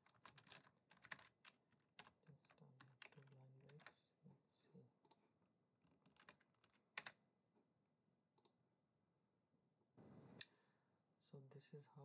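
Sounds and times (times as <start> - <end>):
computer keyboard keystrokes: 0.0 - 3.9, 6.0 - 7.2.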